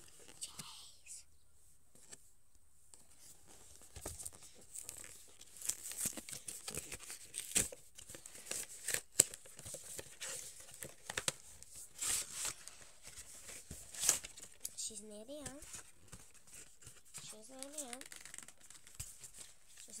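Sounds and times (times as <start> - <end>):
packaging tearing and crinkling: 4.8 - 11.4, 17.6 - 20.0.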